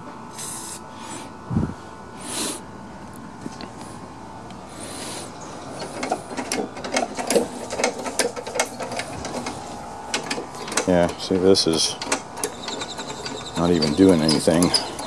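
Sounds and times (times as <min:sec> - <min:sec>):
aerosol spray hiss: 0:00.3 - 0:00.8
metallic clicking and rattling: 0:05.8 - 0:15.0.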